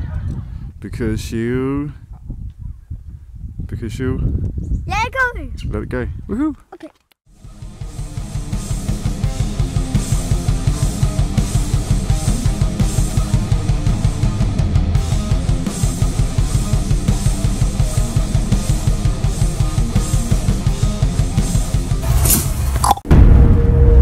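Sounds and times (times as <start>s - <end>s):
rock music with drums and guitar: 7.3s - 22.8s.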